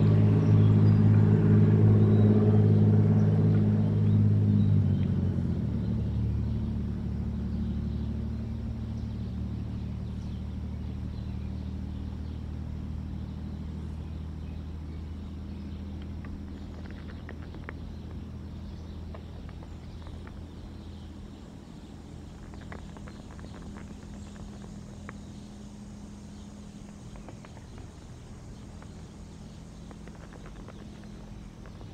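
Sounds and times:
distant vehicle engine drone: 0.0s - 31.9s
faint ticks: 15.6s - 31.9s.

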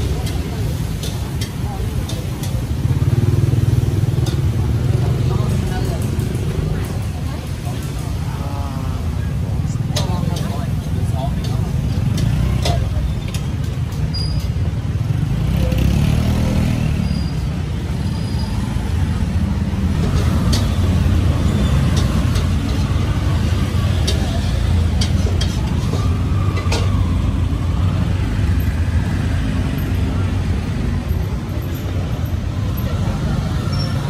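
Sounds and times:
road traffic rumble: 0.0s - 34.0s
motor vehicle passing: 15.0s - 34.0s.

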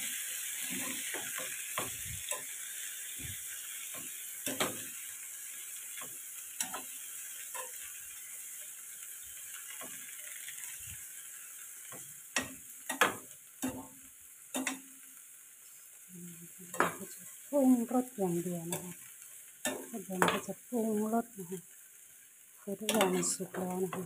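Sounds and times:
food sizzling in a pan: 0.0s - 24.0s
spatula scraping and knocking pan: 22.9s - 24.0s.

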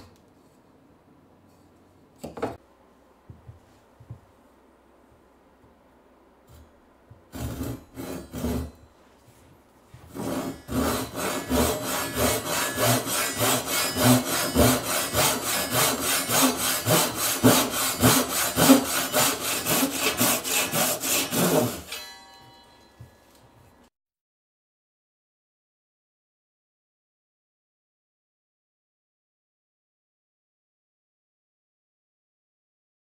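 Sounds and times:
hand saw cutting wood: 7.3s - 8.8s, 10.1s - 22.1s.

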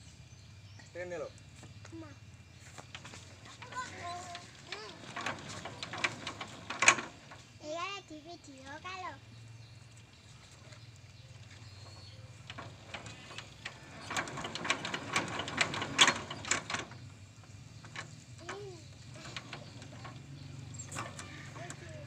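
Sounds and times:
metallic clicking and clanking: 2.9s - 7.6s, 11.6s - 22.0s.

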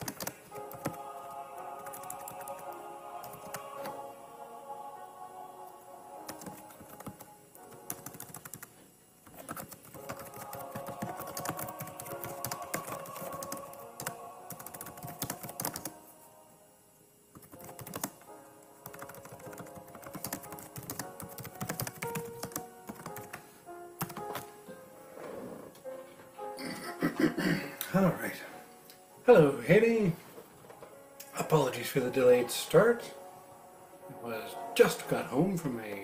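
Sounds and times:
keyboard typing: 0.0s - 1.1s, 1.8s - 4.0s, 6.3s - 16.0s, 17.3s - 18.2s, 18.8s - 23.4s, 24.0s - 24.5s
soft background music: 0.0s - 36.0s.

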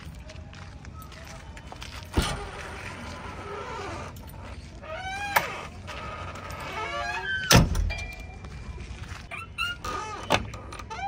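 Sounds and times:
squeaky creaks: 2.1s - 8.2s, 9.2s - 11.0s
heavy door slam: 7.5s - 7.9s.

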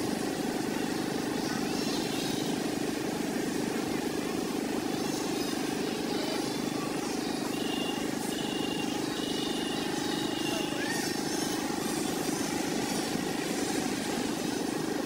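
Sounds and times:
faint high chirps: 7.1s - 11.5s.

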